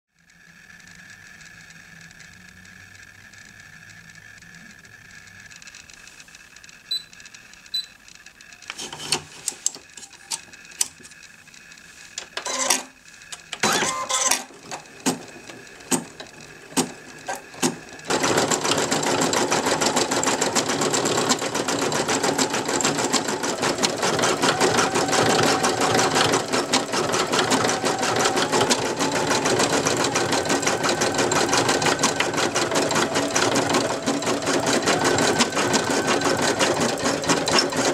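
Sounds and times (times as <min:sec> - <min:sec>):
machine clicks and knocks: 0:12.2 - 0:37.9.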